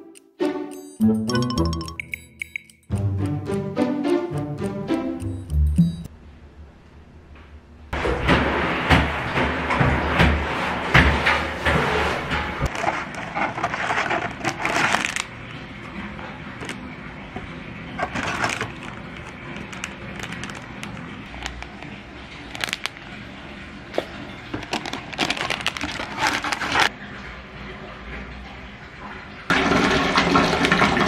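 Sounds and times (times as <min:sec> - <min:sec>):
rustling and scraping: 0:11.2 - 0:15.2, 0:18.0 - 0:22.8, 0:24.0 - 0:26.9.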